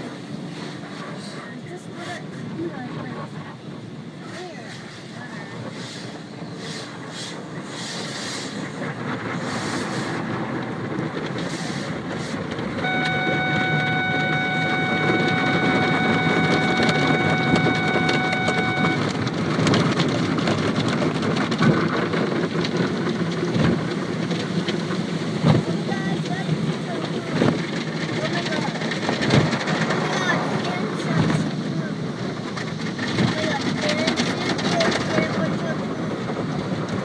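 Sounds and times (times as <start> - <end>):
water spray beating on windshield: 4.3 - 37.0
steady machine whine: 12.8 - 19.5.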